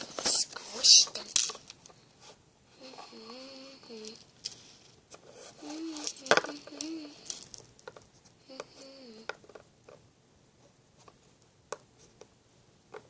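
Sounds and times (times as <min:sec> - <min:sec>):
child humming: 0:02.8 - 0:04.2, 0:05.6 - 0:07.3, 0:08.4 - 0:09.3
plastic tubes tapping and clicking: 0:05.7 - 0:10.0.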